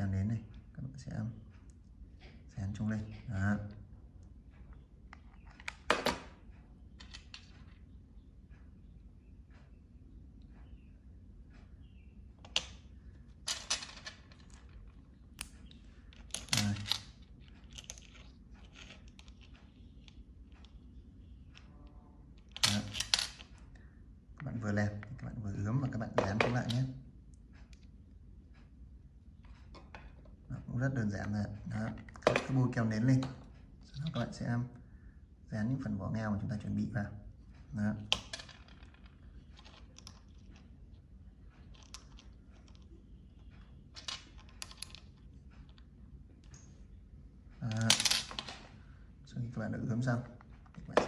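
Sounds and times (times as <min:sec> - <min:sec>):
clam shells clicking and scraping: 0:13.5 - 0:20.6, 0:41.6 - 0:42.9.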